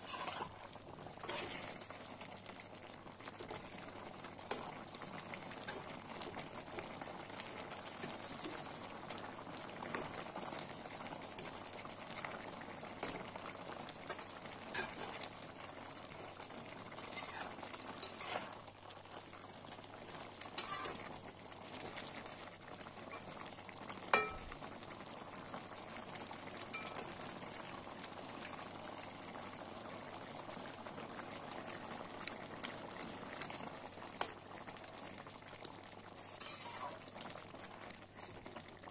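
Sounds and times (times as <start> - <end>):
metal spatula scraping a pan: 0.0 - 1.9, 14.1 - 15.3, 16.9 - 18.6, 20.6 - 21.1, 36.2 - 37.0
curry simmering and sizzling: 0.0 - 38.9.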